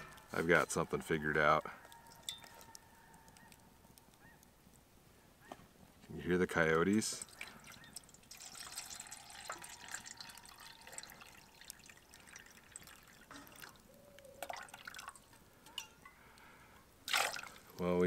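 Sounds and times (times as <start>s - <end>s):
water trickling into a pot: 2.0s - 2.8s, 6.6s - 18.0s.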